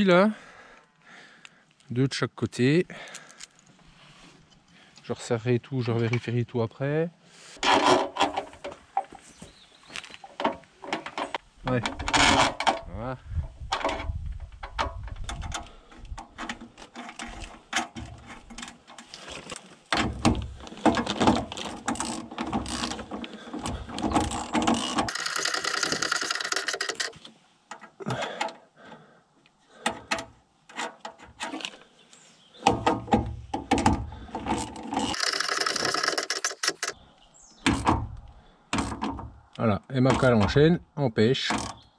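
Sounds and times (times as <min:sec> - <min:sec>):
ratchet wrench clicking: 0:24.8 - 0:27.2, 0:35.0 - 0:37.0.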